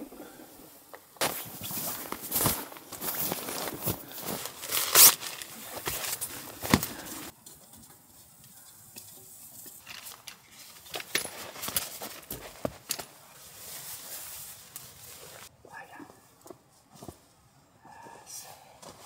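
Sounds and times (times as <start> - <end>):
tent fabric rustling: 1.2 - 7.3, 9.8 - 15.5.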